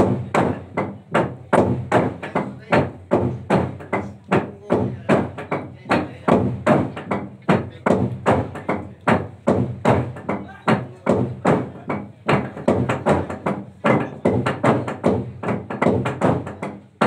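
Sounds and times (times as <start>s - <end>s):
log drum strikes: 0.0s - 17.0s.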